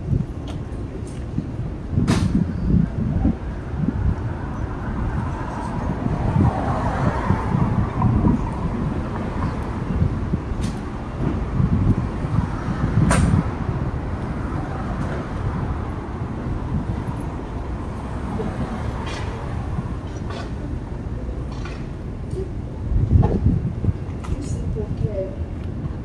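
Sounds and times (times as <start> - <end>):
cars passing: 0.0 - 26.0.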